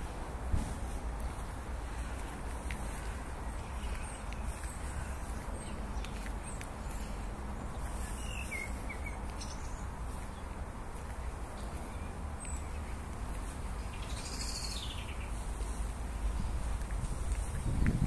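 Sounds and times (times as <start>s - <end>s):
small birds chirping: 1.2s - 18.0s
steady low rumble: 15.2s - 18.0s.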